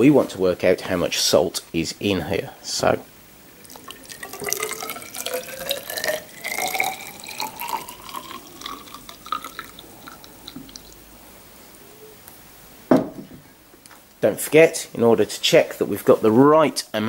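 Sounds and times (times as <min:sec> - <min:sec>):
liquid poured into cylinder: 0:03.6 - 0:11.0.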